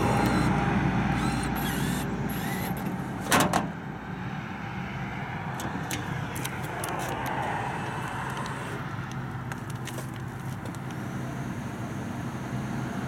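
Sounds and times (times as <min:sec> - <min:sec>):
metal flap clacking shut: 0:03.2 - 0:03.8.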